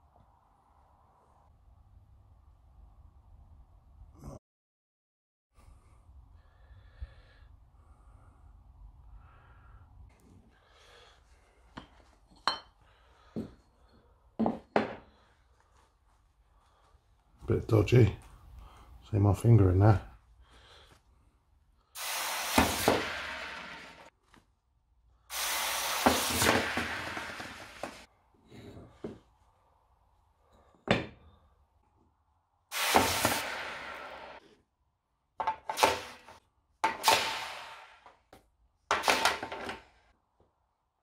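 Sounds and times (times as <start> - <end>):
hot metal splashing and hissing: 22.0 - 24.1, 25.3 - 28.1, 32.7 - 34.4.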